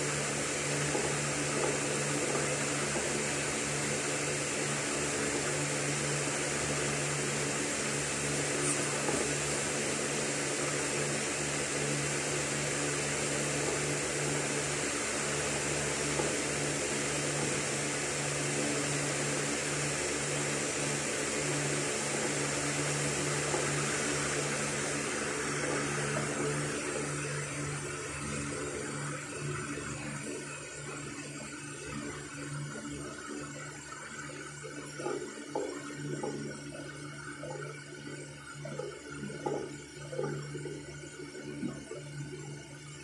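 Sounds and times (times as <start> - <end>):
radio static hiss: 8.3 - 9.7.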